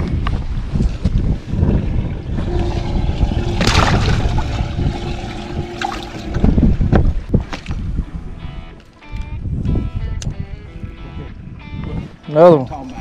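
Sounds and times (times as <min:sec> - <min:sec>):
wind buffeting microphone: 0:00.0 - 0:13.0
water splash: 0:02.4 - 0:07.8.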